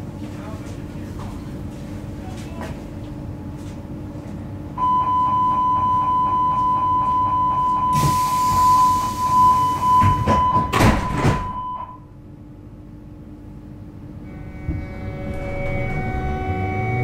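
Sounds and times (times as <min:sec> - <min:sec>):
train doors shutting clatter: 0:07.8 - 0:11.9, 0:14.4 - 0:16.5.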